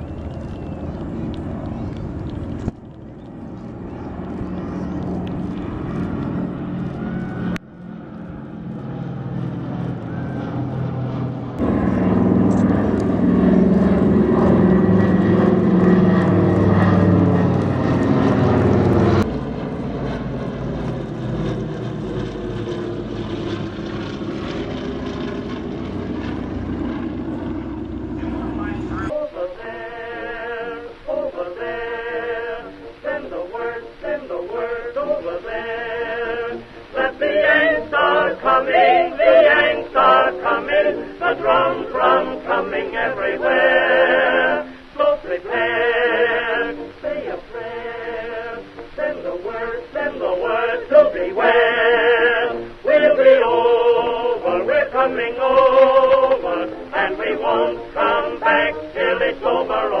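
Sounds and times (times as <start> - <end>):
song with wavering singing: 27.2 - 60.0.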